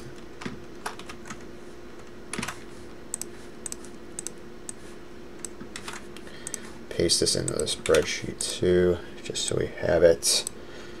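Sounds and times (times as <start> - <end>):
faint steady hum: 0.0 - 11.0
keyboard and mouse clicks: 2.0 - 4.8, 7.5 - 8.1.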